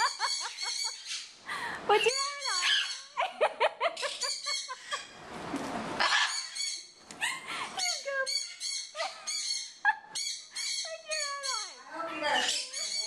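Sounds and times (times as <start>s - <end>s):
macaw squawking and chattering: 7.8s - 13.0s.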